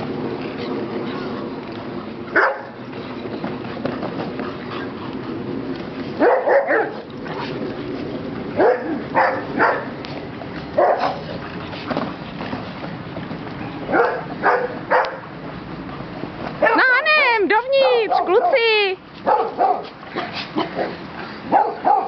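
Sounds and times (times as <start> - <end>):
dogs barking: 2.3 - 2.8, 6.2 - 7.1, 8.6 - 10.0, 10.7 - 11.4, 13.8 - 15.3, 16.6 - 17.0, 17.8 - 22.0.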